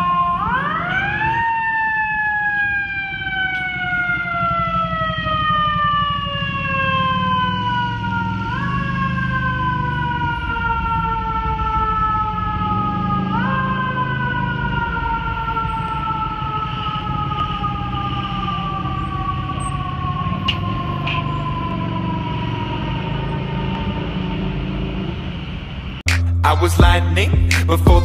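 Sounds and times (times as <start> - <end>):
fire truck siren wailing: 0.0 - 26.7
truck engine rumble: 0.0 - 28.0.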